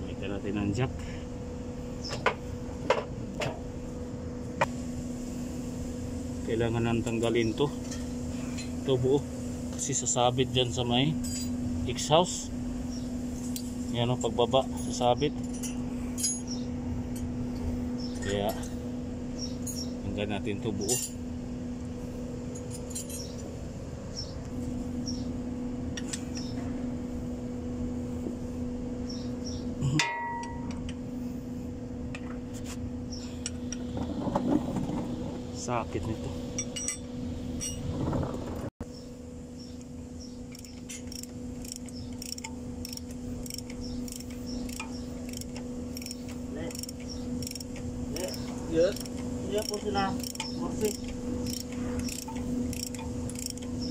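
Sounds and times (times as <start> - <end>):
steady low machine hum: 0.0 - 53.9
wrench clicking on bolt: 40.5 - 53.7.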